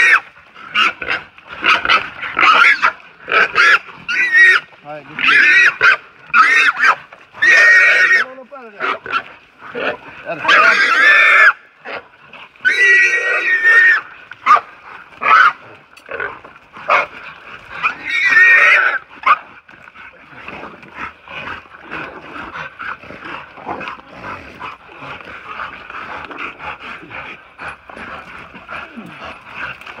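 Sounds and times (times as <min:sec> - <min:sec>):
dogs and hog scuffling in dirt: 0:00.0 - 0:30.0
hog squealing: 0:05.2 - 0:09.2, 0:10.3 - 0:11.6, 0:12.6 - 0:14.6.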